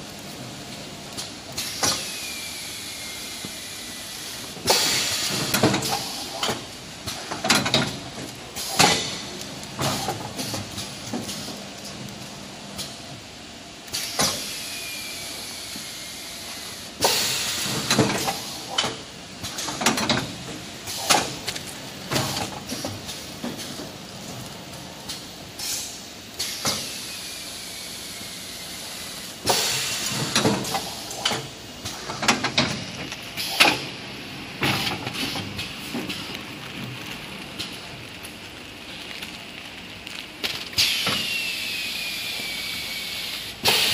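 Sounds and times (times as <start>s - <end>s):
packing machine hissing and clacking: 0.0s - 43.9s.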